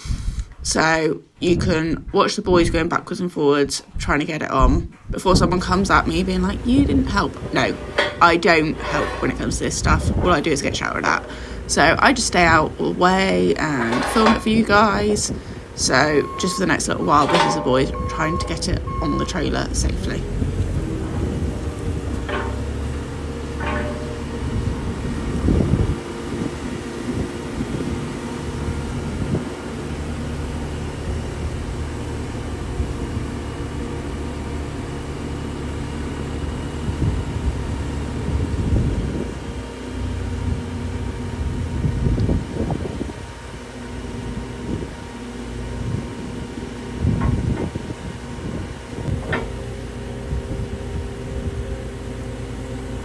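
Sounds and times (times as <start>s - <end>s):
diesel engine running: 0.0s - 53.0s
short knocks: 22.1s - 24.5s.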